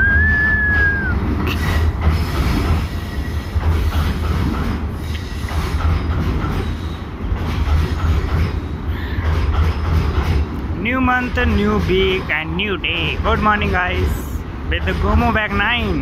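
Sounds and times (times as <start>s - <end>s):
train wheels rumbling on rails: 0.0s - 16.0s.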